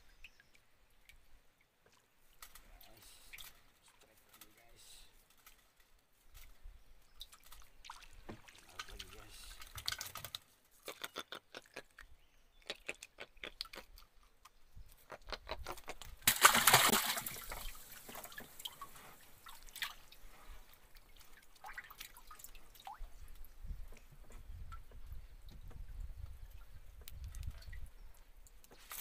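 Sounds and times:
water dripping and trickling: 0:05.2 - 0:14.6, 0:16.4 - 0:29.0
water splash: 0:16.2 - 0:20.1.

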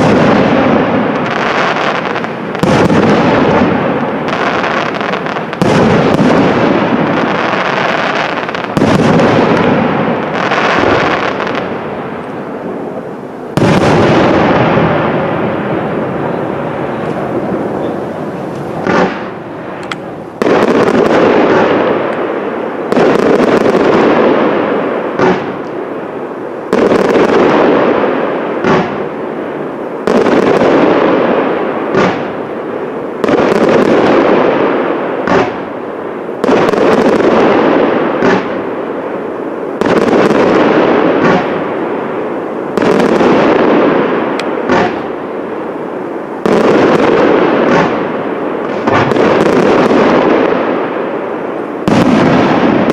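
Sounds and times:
firework shells bursting: 0:13.5 - 0:22.3, 0:42.7 - 0:45.2, 0:46.4 - 0:50.6.

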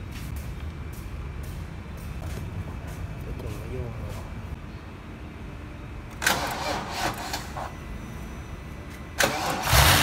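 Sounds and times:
engine running with low pulsing: 0:00.0 - 0:10.0
engine cranking: 0:09.2 - 0:10.0.

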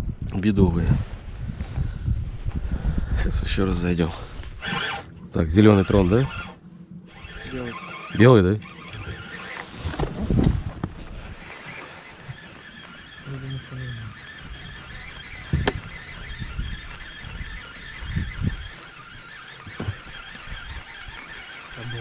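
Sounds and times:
faint outdoor background: 0:00.0 - 0:22.0
knocks and thumps on boat: 0:19.7 - 0:20.1.

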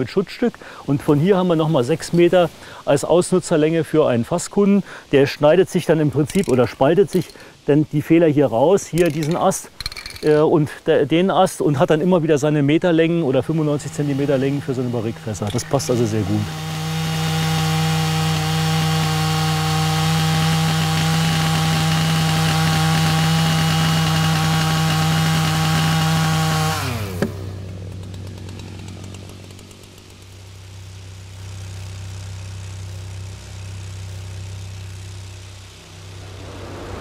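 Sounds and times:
chainsaw cutting wood: 0:13.3 - 0:36.4
low hum: 0:26.9 - 0:37.0.

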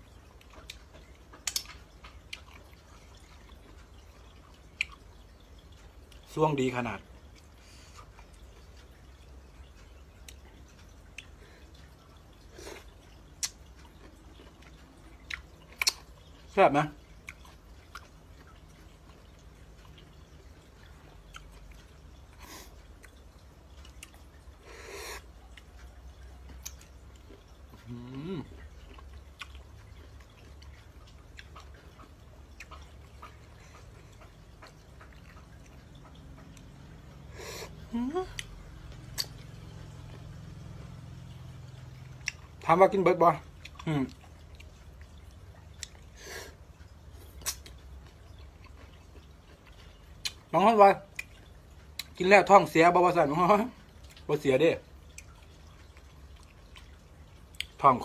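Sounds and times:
low steady hum: 0:00.0 - 0:58.0
person chewing wetly: 0:00.0 - 0:58.0
wet mouth clicks and lip smacks: 0:00.6 - 0:01.8, 0:15.3 - 0:16.1, 0:39.1 - 0:39.5, 0:47.2 - 0:47.8.

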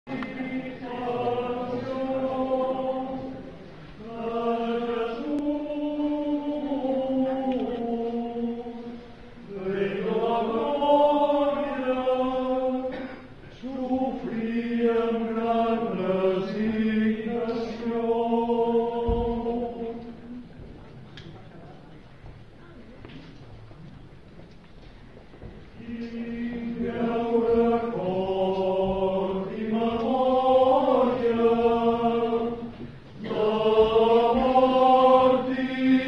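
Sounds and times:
men's choir singing: 0:00.1 - 0:20.4, 0:25.8 - 0:36.0.

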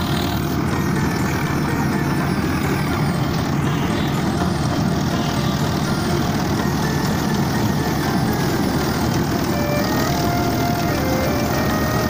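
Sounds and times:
combine harvester drone: 0:00.0 - 0:12.0.

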